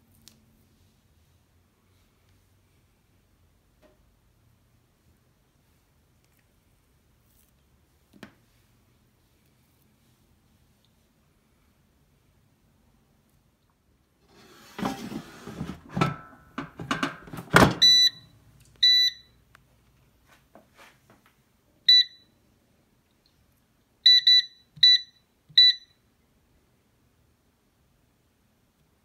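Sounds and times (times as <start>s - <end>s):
clattering and knocks: 14.8s - 17.8s
short high beeps: 17.8s - 19.4s.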